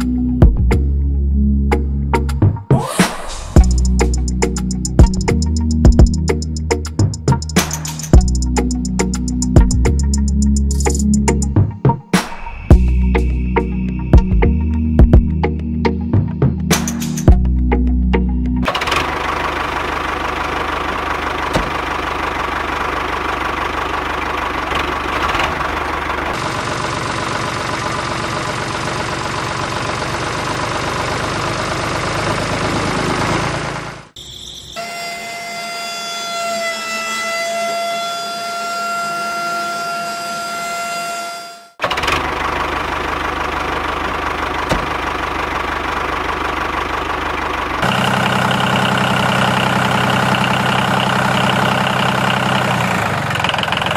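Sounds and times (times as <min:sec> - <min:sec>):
small tractor engine running: 0:03.6 - 0:11.6, 0:18.6 - 0:34.2, 0:41.8 - 0:53.9.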